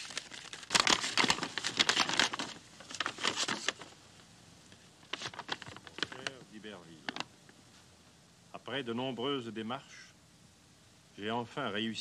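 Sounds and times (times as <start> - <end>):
stiff paper crackling and rustling: 0.0 - 4.0, 5.0 - 7.3.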